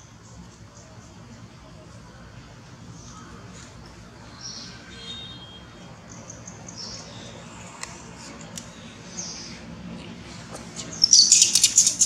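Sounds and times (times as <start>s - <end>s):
monkey squeaks and chirps: 11.0s - 12.0s.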